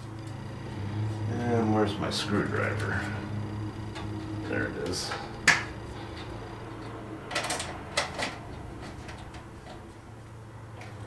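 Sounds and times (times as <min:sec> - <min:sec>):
metallic clicks and clatter: 0:06.2 - 0:09.9.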